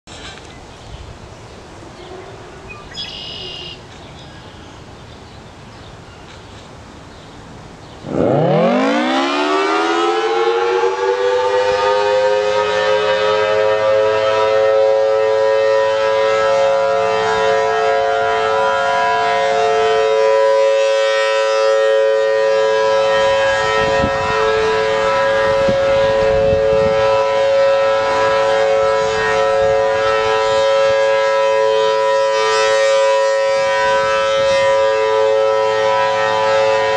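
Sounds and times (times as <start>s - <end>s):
warning siren wailing: 8.0s - 36.9s.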